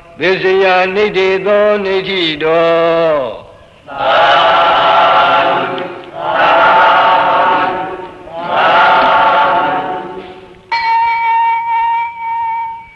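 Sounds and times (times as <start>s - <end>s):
group of voices chanting: 3.9s - 10.5s
held instrument note: 10.2s - 12.9s.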